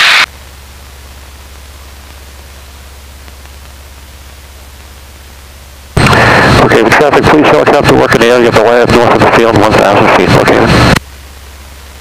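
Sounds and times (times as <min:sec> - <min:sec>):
low steady drone: 0:00.0 - 0:12.0
headset intercom hiss: 0:06.0 - 0:11.0.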